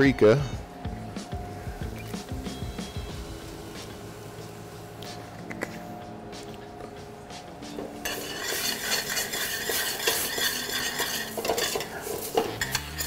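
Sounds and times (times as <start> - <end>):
food sizzling: 0.0 - 13.0
spoon scraping and clinking a pot: 7.8 - 13.0.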